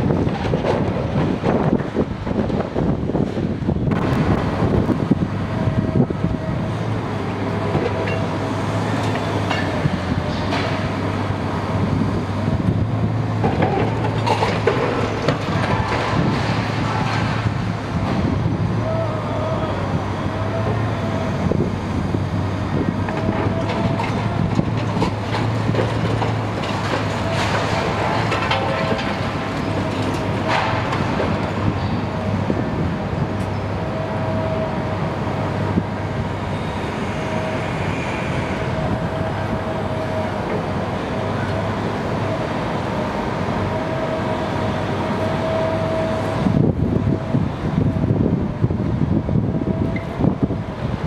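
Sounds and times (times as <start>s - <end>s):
engine whine: 0.0s - 51.0s
excavator diesel engine running: 0.0s - 51.0s
breaking timber and debris crunching: 13.5s - 17.5s, 23.0s - 31.6s.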